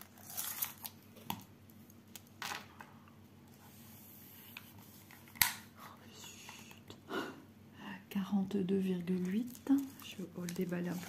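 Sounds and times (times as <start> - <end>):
tape measure rustling on canvas: 9.3 - 11.0.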